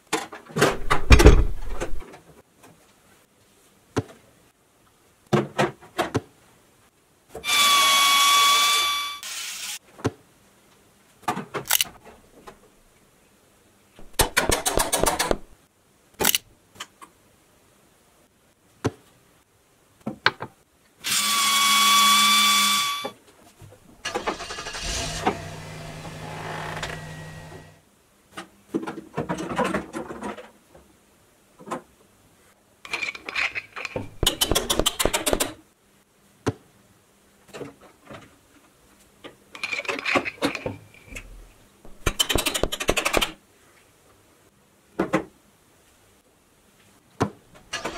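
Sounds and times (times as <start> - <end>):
low motor hum: 24.6 - 27.8.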